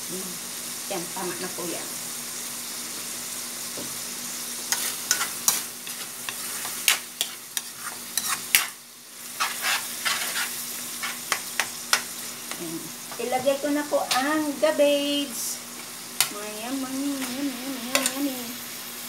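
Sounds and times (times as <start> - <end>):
food sizzling in a wok: 0.0 - 19.0
spatula scraping a pan: 4.7 - 12.6.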